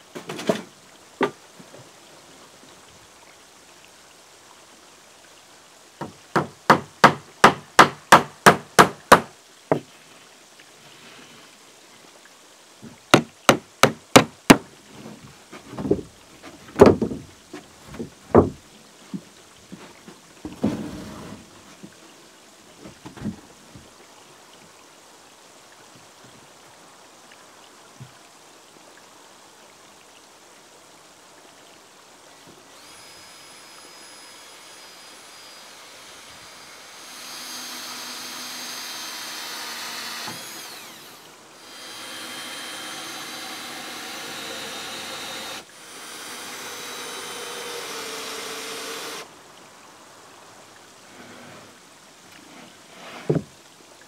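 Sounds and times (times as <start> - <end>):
hammer driving nails into wood: 6.4 - 9.3.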